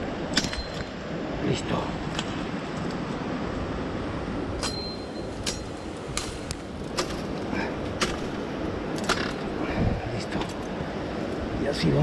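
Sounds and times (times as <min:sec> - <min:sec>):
machete chopping brush: 0:05.4 - 0:08.4.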